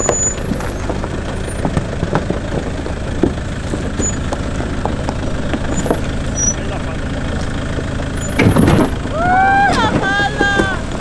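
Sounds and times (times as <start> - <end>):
off-road vehicle engine and road rumble: 0.0 - 11.0
short knocks and rattles: 8.2 - 9.0.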